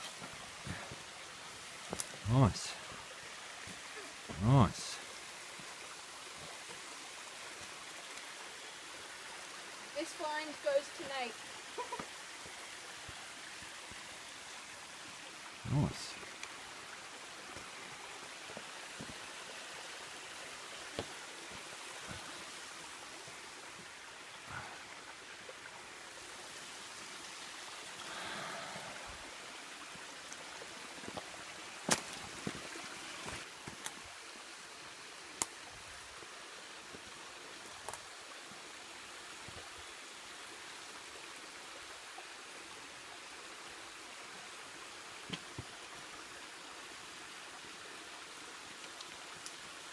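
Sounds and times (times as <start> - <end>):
footsteps on creek stones: 0.0 - 2.2, 3.6 - 4.4, 17.4 - 19.3, 20.8 - 22.3, 29.9 - 34.0
creek running over rocks: 0.0 - 49.9.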